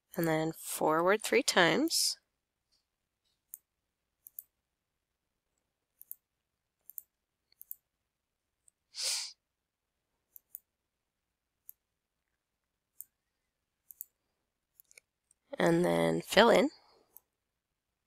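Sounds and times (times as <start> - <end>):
computer mouse clicking: 3.4 - 4.6, 6.0 - 7.9, 10.3 - 10.7, 11.6 - 11.8, 12.9 - 13.2, 13.8 - 15.4.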